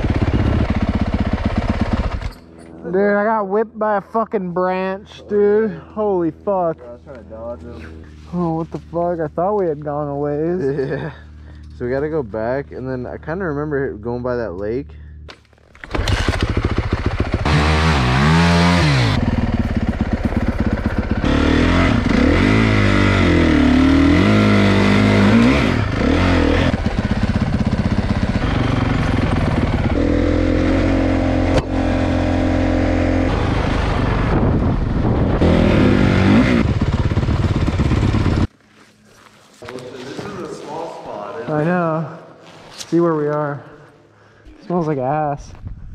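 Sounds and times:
dirt bike engine revving: 0.0 - 2.4, 15.8 - 38.5.

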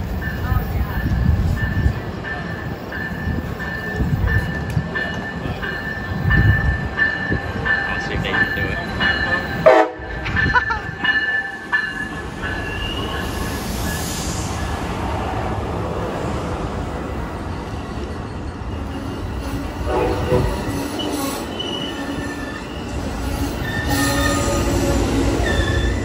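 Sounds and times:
train cars rumbling: 0.0 - 26.0
wheels and brakes squealing: 12.5 - 14.7, 17.3 - 26.0.

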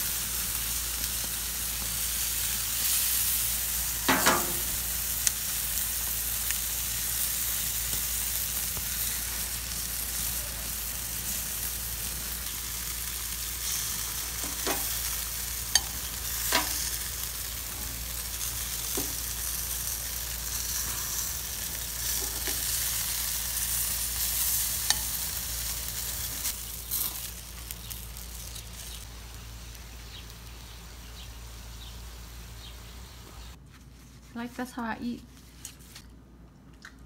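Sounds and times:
sausages sizzling on a grill: 0.0 - 33.6.

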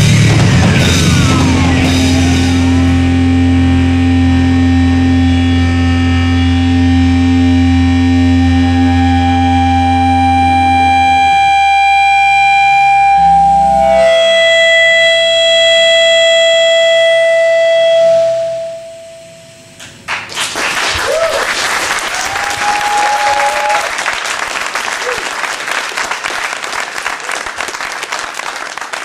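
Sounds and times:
live band final chord: 0.0 - 11.2
audience applause: 20.0 - 29.0.

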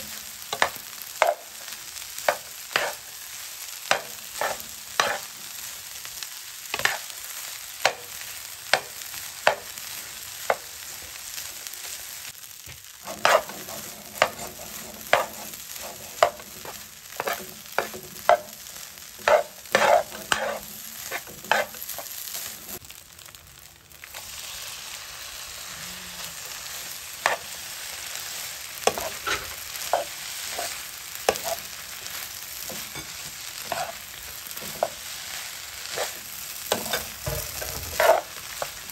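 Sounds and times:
rice sizzling in a frying pan: 0.0 - 38.9
metal spatula scraping a pan: 0.5 - 3.1, 3.9 - 5.3, 13.0 - 22.8, 26.2 - 27.6, 28.8 - 38.9.

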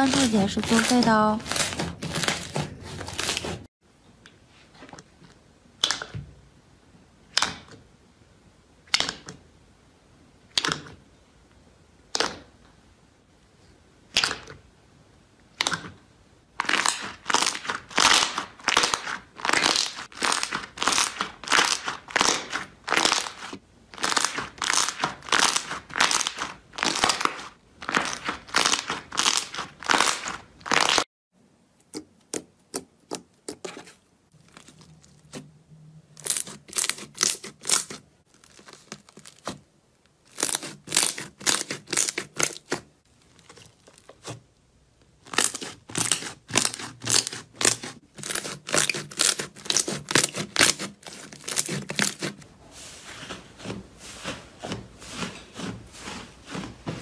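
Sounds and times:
slime crackling and crunching: 0.0 - 3.7, 16.6 - 31.1, 33.6 - 35.4, 36.2 - 44.4, 45.2 - 52.4
sticky slime clicks and pops: 5.8 - 6.2, 8.9 - 9.3, 14.1 - 14.6.

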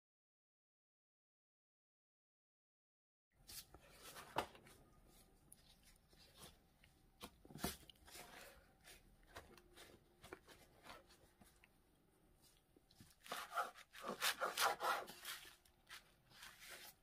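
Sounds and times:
paper towel rustling and crinkling: 3.4 - 11.7, 12.4 - 17.0.

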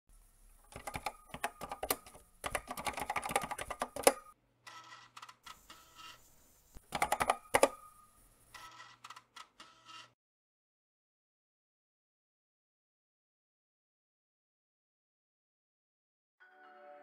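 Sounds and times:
computer keyboard typing: 0.7 - 4.4, 6.9 - 7.8.

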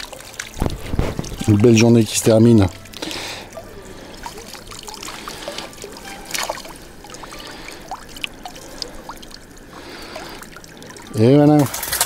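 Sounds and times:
water trickling and dripping: 0.0 - 12.0.

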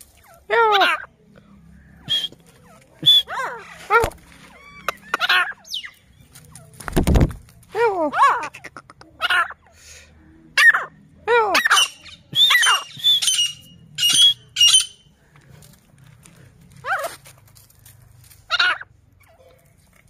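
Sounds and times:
francolin calling: 11.5 - 15.2.

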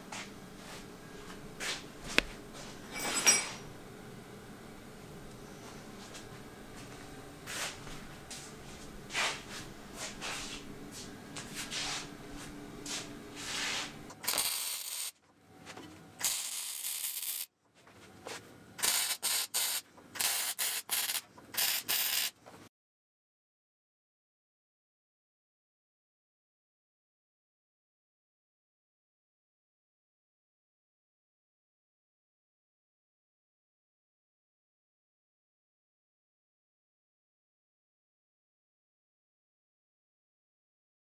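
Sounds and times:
steady low hum: 0.0 - 14.7
short scraping sounds: 9.1 - 10.6, 12.9 - 14.0
arc welding crackle: 14.1 - 15.2, 16.2 - 17.5, 18.8 - 22.4.

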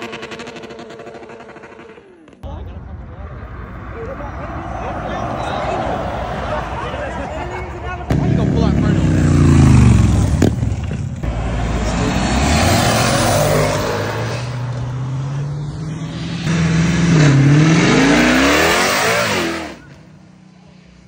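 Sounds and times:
cars accelerating past: 1.4 - 21.0.

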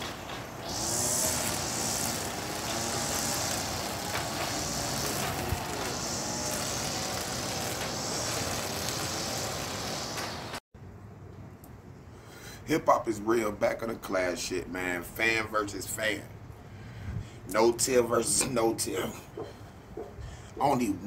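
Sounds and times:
high hiss: 0.0 - 10.6
distant traffic: 0.0 - 17.0.

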